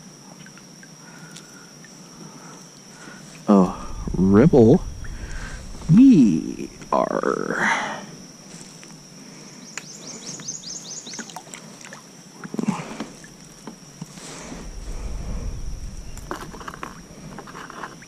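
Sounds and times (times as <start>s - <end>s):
low rumble: 3.5s - 9.0s, 14.2s - 17.9s.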